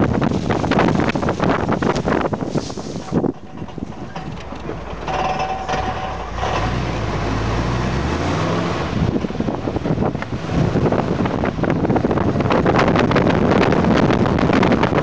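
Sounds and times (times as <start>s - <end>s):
wind noise on microphone: 0.0s - 15.0s
car engine revving: 4.4s - 11.7s.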